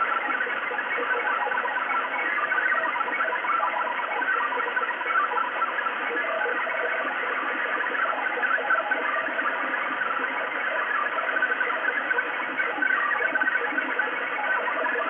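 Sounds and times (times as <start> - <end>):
multi-tone data transmission: 0.0 - 15.0.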